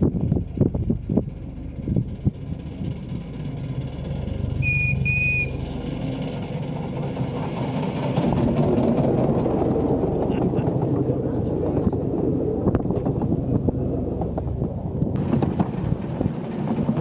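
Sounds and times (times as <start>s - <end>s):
steam locomotive rumbling: 0.0s - 17.0s
steam whistle toots: 4.6s - 5.6s.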